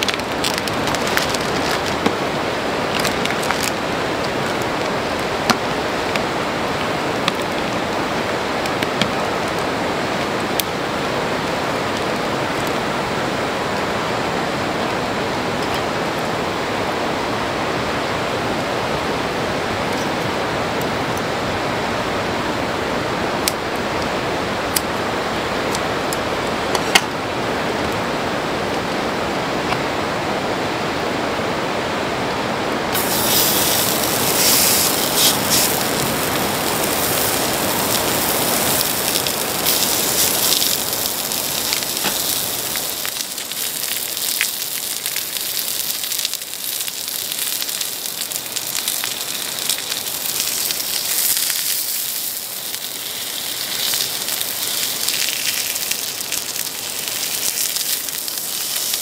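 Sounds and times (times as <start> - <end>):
pork sizzling and popping on griddle: 0.0 - 2.2, 2.8 - 10.7, 33.0 - 59.0
steady rushing hiss: 0.0 - 59.0.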